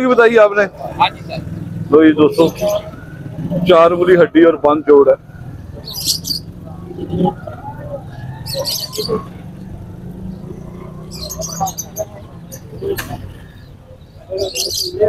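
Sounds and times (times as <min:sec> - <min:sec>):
birds chirping: 0:00.0 - 0:15.0
murmur of distant voices: 0:00.0 - 0:15.0.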